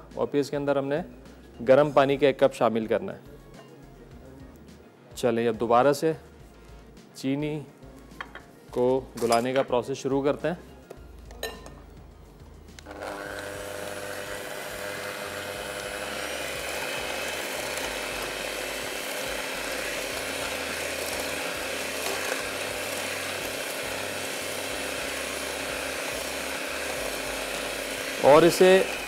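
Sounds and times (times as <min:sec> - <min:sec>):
electric mixer motor whine: 0:12.8 - 0:29.0.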